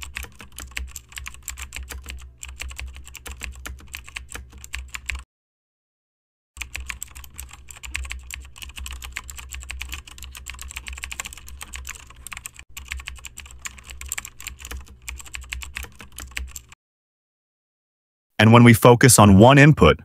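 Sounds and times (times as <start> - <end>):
fast typing on keyboard: 0.0 - 5.2, 6.6 - 16.8.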